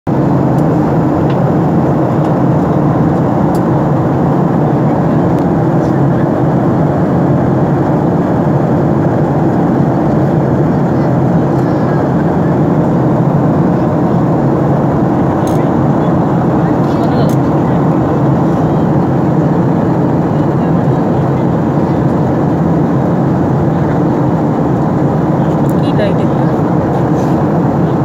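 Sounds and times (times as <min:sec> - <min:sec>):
jet airliner cabin noise: 0:00.1 - 0:28.0.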